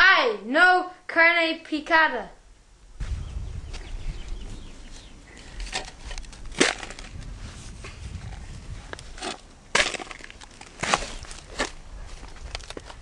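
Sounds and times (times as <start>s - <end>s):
dry grass and dirt crunching: 3.0s - 13.0s
handheld camera rumble: 3.0s - 13.0s.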